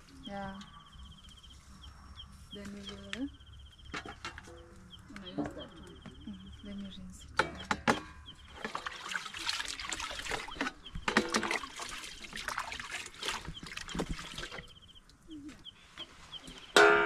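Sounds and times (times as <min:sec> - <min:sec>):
small bird chirping: 0:00.0 - 0:16.8
water sloshing: 0:07.4 - 0:15.0
metal clank: 0:16.8 - 0:17.0.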